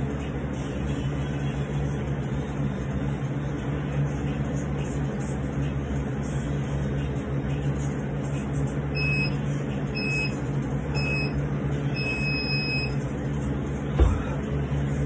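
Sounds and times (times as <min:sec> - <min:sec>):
long beep: 0:09.0 - 0:09.4, 0:10.0 - 0:10.4, 0:11.0 - 0:11.4, 0:12.0 - 0:13.0
short high beeps: 0:09.0 - 0:09.4, 0:10.0 - 0:10.4, 0:11.0 - 0:11.4, 0:12.0 - 0:13.0.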